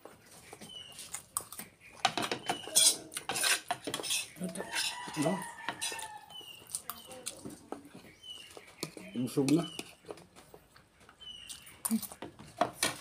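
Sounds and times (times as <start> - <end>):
chewing: 0.0 - 2.0, 2.6 - 12.4
plates and dishes clinking: 2.0 - 6.1.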